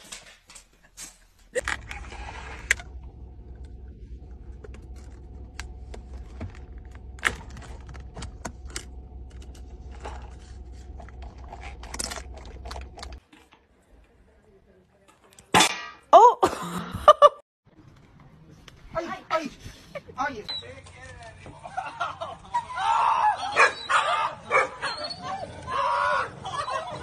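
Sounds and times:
car interior hum: 0:01.6 - 0:13.2.

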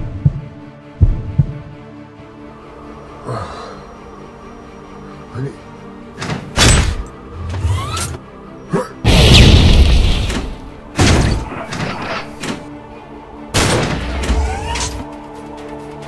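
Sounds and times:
background music: 0:00.0 - 0:16.0
heavy gun blasts: 0:09.1 - 0:11.5.

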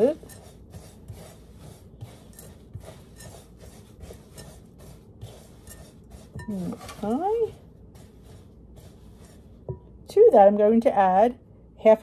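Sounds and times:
spatula scraping glass bowl: 0:00.0 - 0:09.8.

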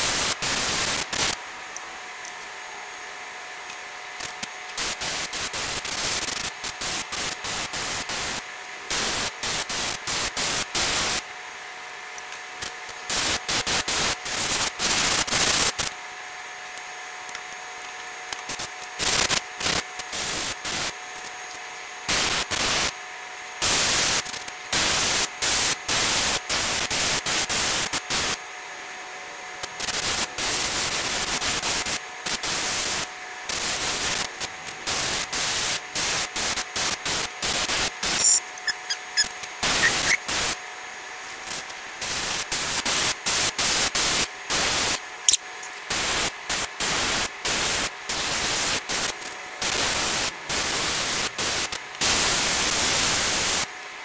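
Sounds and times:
airbrush hissing in bursts: 0:04.8 - 0:11.2, 0:34.9 - 0:40.6, 0:42.0 - 0:53.7.

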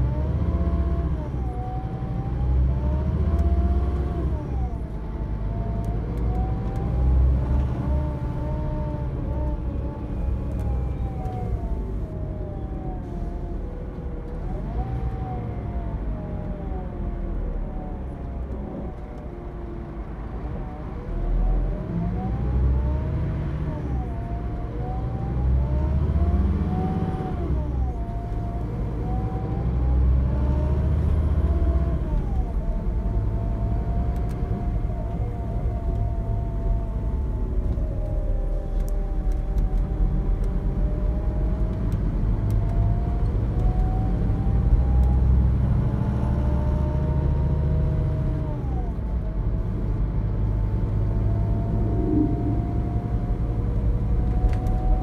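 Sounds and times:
steady road rumble: 0:00.0 - 0:55.0
coach diesel engine whine: 0:47.9 - 0:55.0.

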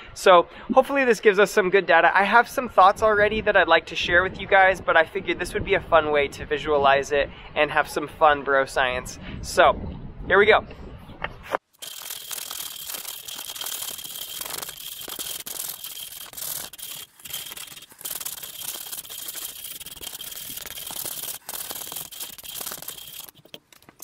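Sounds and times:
sandpaper rasping on wood: 0:11.8 - 0:24.0.

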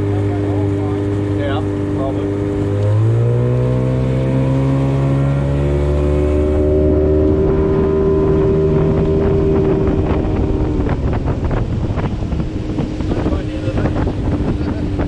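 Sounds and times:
outboard motor cruising: 0:00.0 - 0:15.0.

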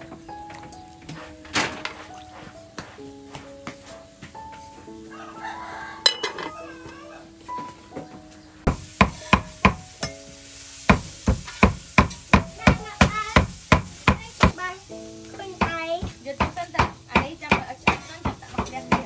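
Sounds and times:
light background music: 0:00.0 - 0:19.0
rooster crowing: 0:05.0 - 0:07.7.

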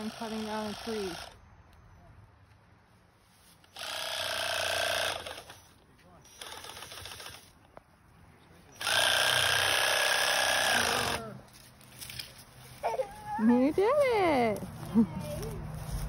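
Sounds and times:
reciprocating saw cutting wood: 0:00.0 - 0:01.4, 0:03.7 - 0:07.5, 0:08.8 - 0:11.3.

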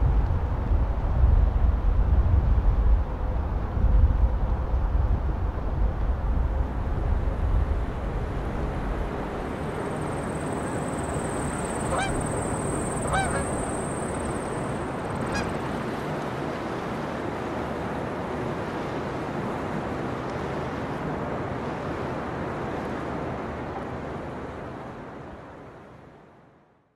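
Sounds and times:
steady rushing background: 0:04.1 - 0:16.4
geese honking: 0:10.8 - 0:15.7.

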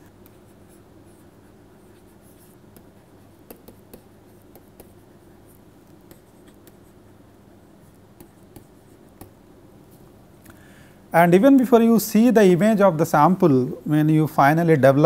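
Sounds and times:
steady low hum: 0:00.0 - 0:15.0
stylus tapping on tablet: 0:02.7 - 0:05.0, 0:08.1 - 0:09.4.

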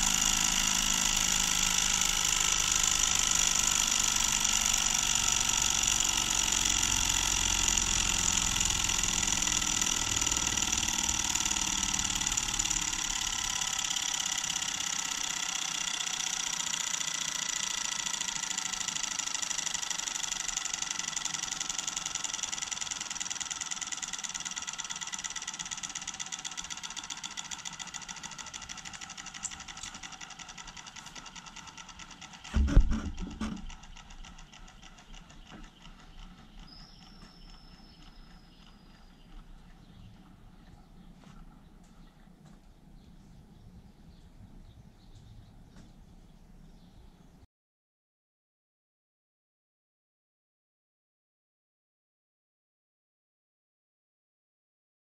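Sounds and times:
pulse motor pulsing whine: 0:00.0 - 0:42.3.

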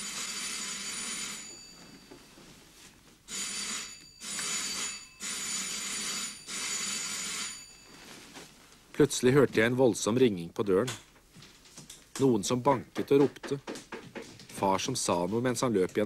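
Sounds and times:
doorbell ringing: 0:00.0 - 0:02.4, 0:03.3 - 0:08.2.

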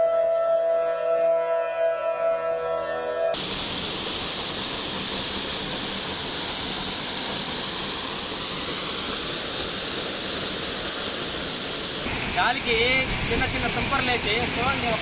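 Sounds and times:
waterfall splashing into pool: 0:03.4 - 0:15.0.

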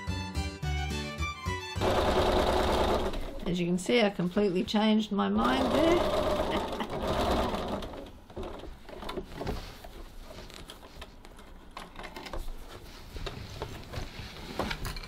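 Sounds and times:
sewing machine stitching: 0:01.8 - 0:03.5, 0:05.4 - 0:09.0
fabric rustling: 0:08.4 - 0:11.2, 0:12.4 - 0:14.8.

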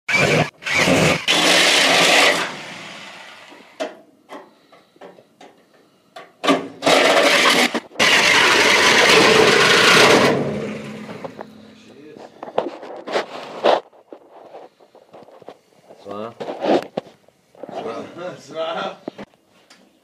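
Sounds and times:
reciprocating saw cutting metal: 0:00.1 - 0:03.8, 0:06.8 - 0:11.4.

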